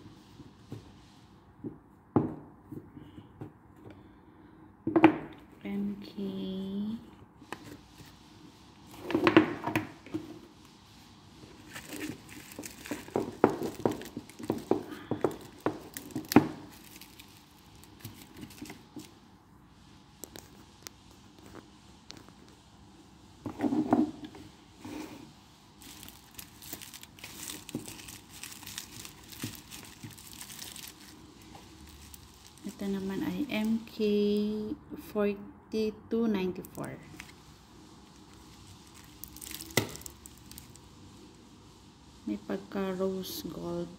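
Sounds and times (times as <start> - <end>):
plastic wrapping crinkling: 10.9 - 19.2, 25.7 - 34.0, 36.6 - 40.9
cardboard boxes knocking and sliding: 11.7 - 16.6.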